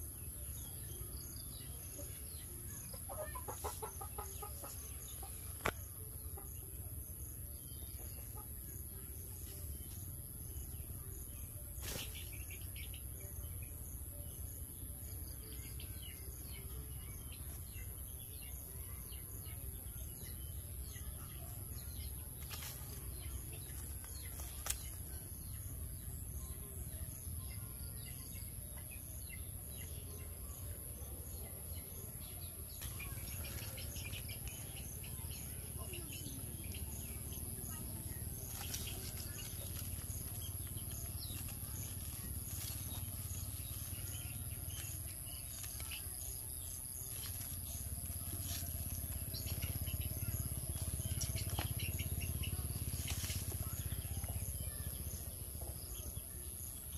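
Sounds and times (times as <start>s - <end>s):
bird chirps: 0.0s - 56.9s.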